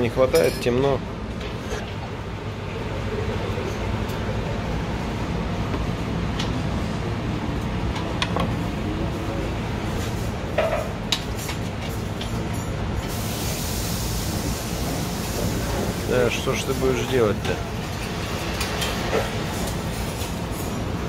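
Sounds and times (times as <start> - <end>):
kitchen ventilation hum: 0.0 - 21.0.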